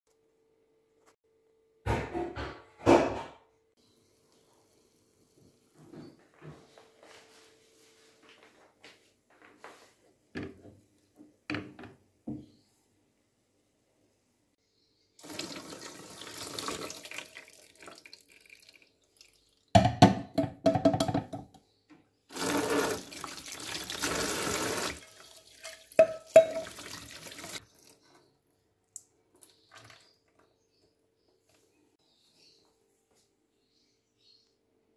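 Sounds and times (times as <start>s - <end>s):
water pouring through a sieve: 15.2s - 19.7s, 22.3s - 28.0s.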